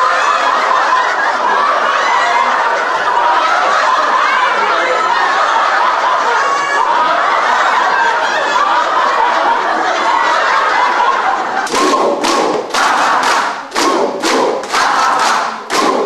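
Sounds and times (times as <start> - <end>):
crowd laughing: 0.0 - 16.0
group clapping: 9.9 - 16.0.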